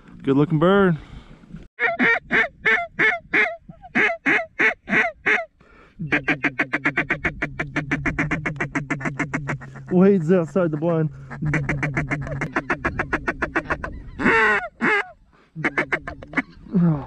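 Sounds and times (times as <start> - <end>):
waterfowl honking: 6.1 - 16.6.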